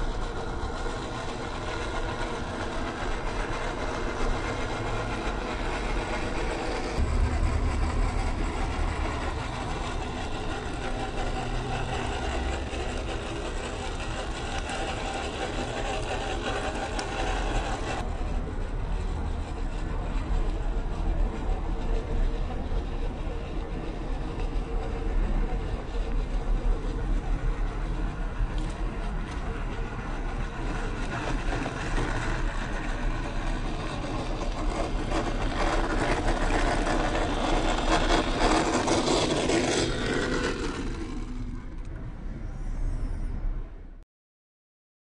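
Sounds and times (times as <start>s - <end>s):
tyres rumbling on gravel: 0.0s - 18.5s, 24.2s - 41.4s
electric motor and gearbox whine: 0.0s - 18.9s.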